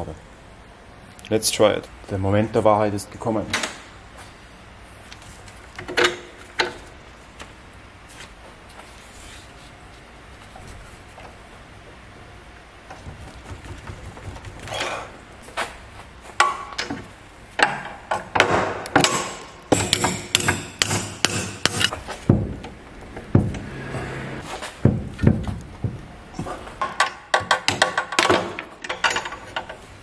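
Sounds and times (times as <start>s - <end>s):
hammer striking metal: 18.4s - 21.9s.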